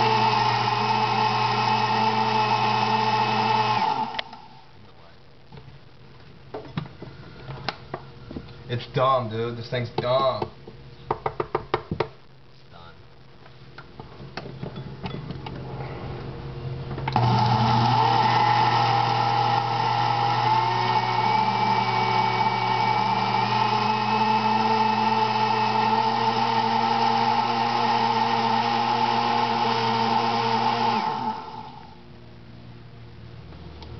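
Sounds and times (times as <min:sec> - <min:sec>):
blender running: 0:00.0 - 0:04.6, 0:17.1 - 0:32.0.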